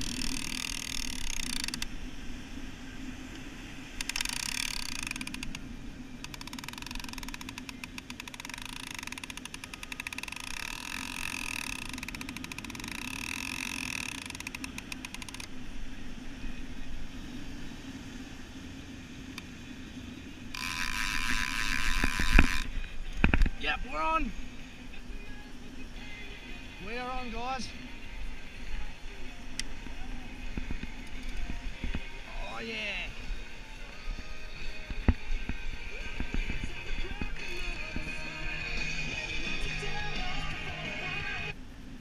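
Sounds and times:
fishing reel ratchet buzzing: 0:00.0 - 0:01.9, 0:04.0 - 0:05.6, 0:06.2 - 0:15.5, 0:20.5 - 0:23.5.

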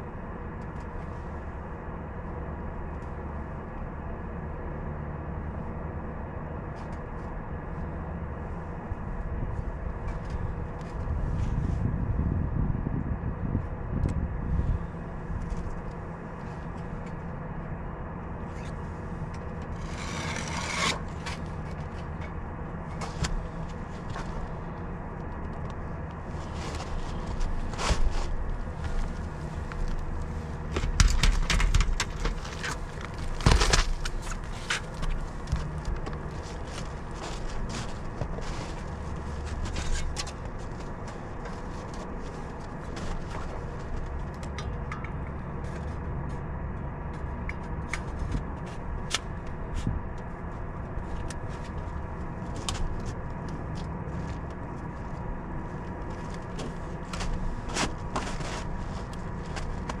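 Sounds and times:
faint constant hum: 0:00.0 - 1:00.0
steady low rumble: 0:00.0 - 1:00.0
tools knocking and scraping: 0:19.6 - 0:22.4.

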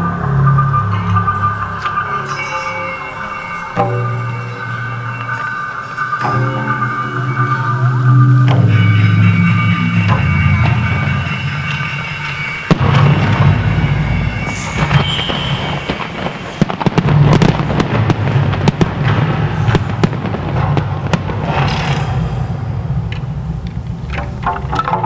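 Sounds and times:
fireworks bangs and bursts: 0:12.6 - 0:22.0.

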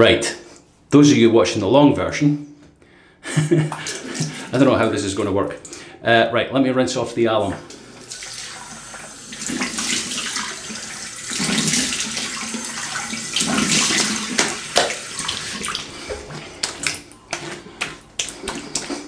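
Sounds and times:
water dripping: 0:03.6 - 0:05.9, 0:07.4 - 0:19.0
water splashing: 0:03.7 - 0:05.8, 0:07.7 - 0:19.0.

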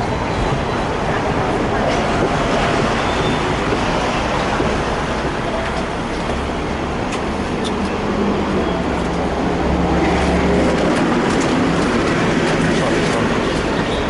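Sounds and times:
street traffic: 0:00.0 - 0:14.0
tram ride rumble: 0:00.0 - 0:14.0.

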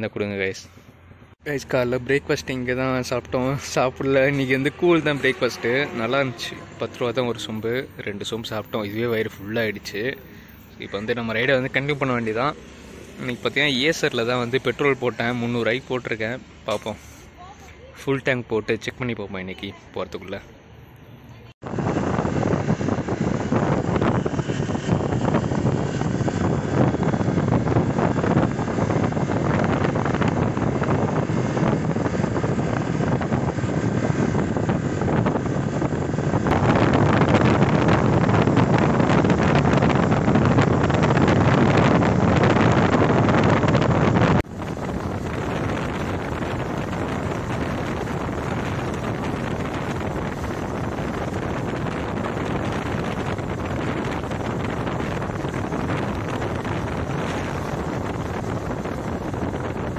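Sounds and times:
motorcycle engine running: 0:21.6 - 0:59.9
wind buffeting microphone: 0:21.6 - 0:59.9.

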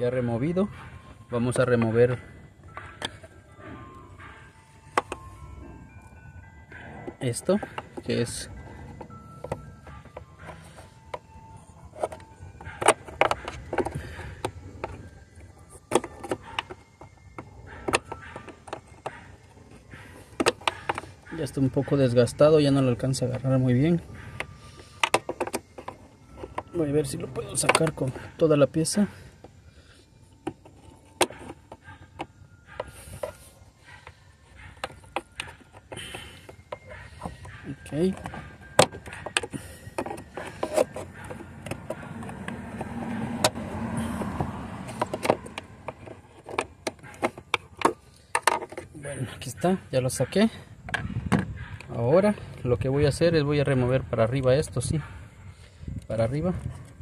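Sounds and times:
screwdriver scraping: 0:34.6 - 0:42.9.

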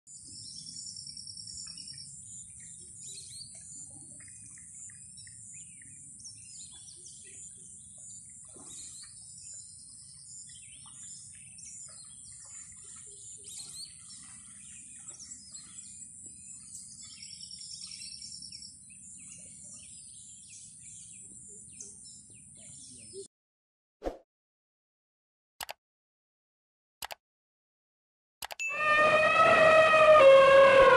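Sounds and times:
birds chirping: 0:00.2 - 0:23.3
high-pitched drone: 0:28.6 - 0:30.9.

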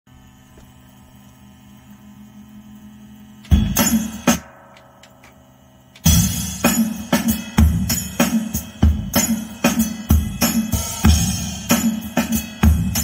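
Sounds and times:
hip-hop drum beat: 0:03.4 - 0:13.0.

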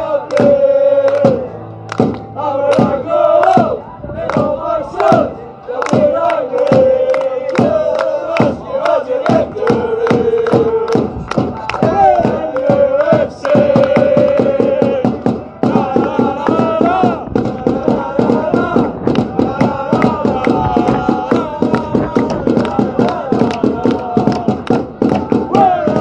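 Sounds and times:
crowd chanting: 0:00.0 - 0:26.0
quick steady beat: 0:09.2 - 0:26.0.

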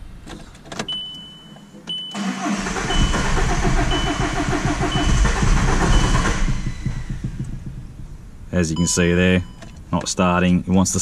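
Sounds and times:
starter motor cranking engine: 0:02.2 - 0:07.9
short high beeps: 0:02.8 - 0:07.1, 0:08.8 - 0:09.9.

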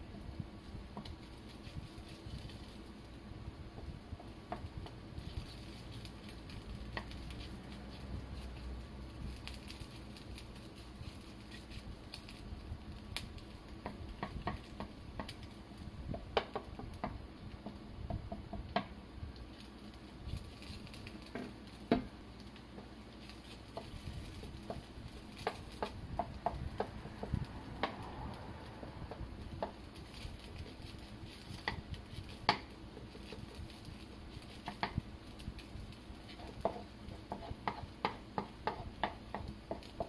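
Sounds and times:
food sizzling: 0:00.0 - 0:40.0
spatula scraping frying pan: 0:29.1 - 0:40.0.

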